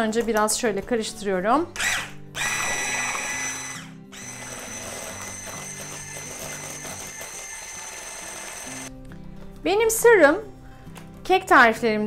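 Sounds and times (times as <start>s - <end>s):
electric hand mixer whining: 1.8s - 8.9s.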